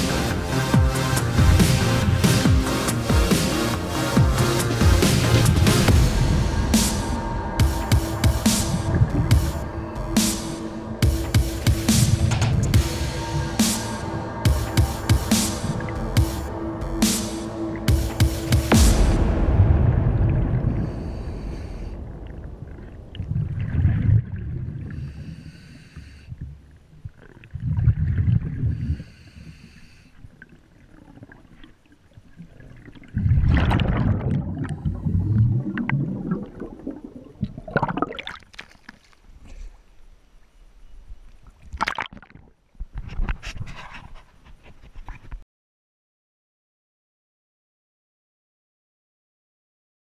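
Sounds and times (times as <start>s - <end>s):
exhaled bubbles bursting: 22.1s - 25.0s, 32.4s - 39.1s, 41.7s - 42.5s.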